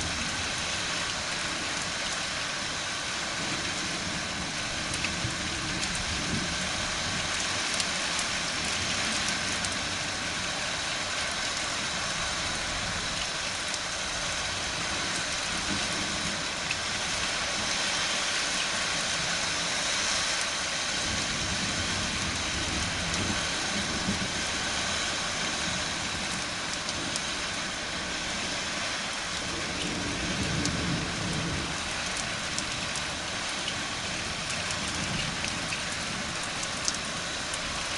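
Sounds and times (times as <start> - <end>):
steady rain falling: 0.0 - 37.9
low thunder rumbles: 29.4 - 36.4.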